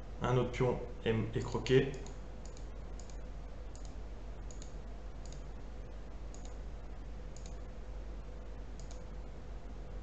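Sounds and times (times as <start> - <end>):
low electrical hum: 0.0 - 10.0
computer mouse clicking: 1.9 - 5.5, 6.3 - 6.6, 7.3 - 7.6, 8.8 - 9.1.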